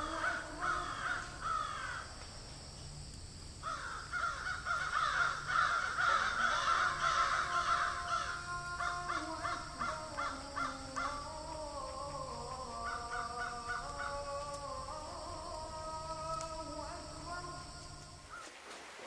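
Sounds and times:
flock of birds calling: 0.0s - 2.1s, 3.6s - 15.1s.

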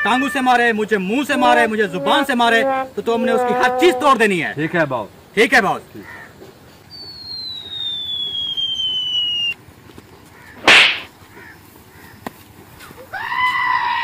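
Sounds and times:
falling cartoon whistle: 7.0s - 9.6s
whip-like swish and smack: 10.6s - 11.1s.

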